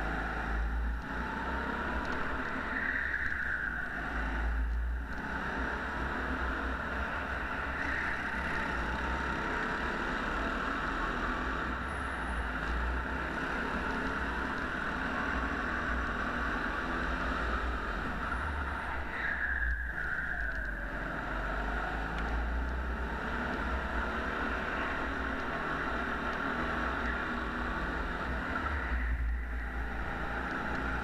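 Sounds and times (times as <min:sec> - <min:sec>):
go-kart engine droning: 0:00.0 - 0:31.0.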